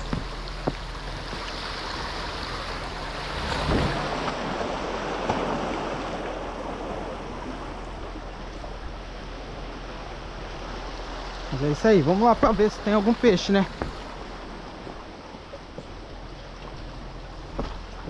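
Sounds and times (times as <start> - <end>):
waves washing against rocks: 0.0 - 15.3
wind noise on microphone: 3.3 - 4.6.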